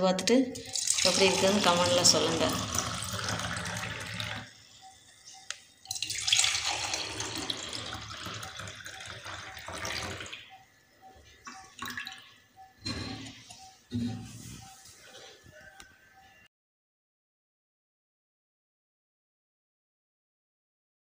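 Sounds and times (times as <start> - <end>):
juice pouring into a glass: 0.6 - 4.5, 5.9 - 10.4.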